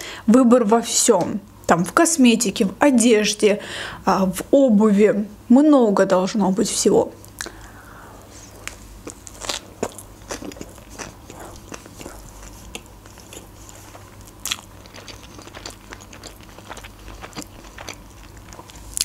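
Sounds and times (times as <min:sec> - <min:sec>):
wet mouth clicks: 0:07.3 - 0:07.6
close chewing with crunches: 0:08.4 - 0:19.0.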